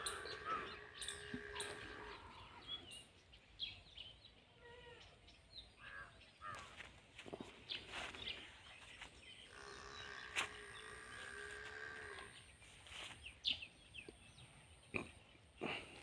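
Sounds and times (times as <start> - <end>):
cow mooing: 0.0 - 2.6, 9.5 - 12.4
birds chirping: 0.0 - 16.0.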